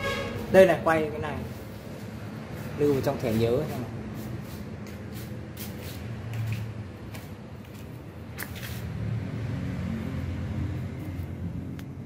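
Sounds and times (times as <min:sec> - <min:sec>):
sharp click or scrape: 0:08.4 - 0:08.9.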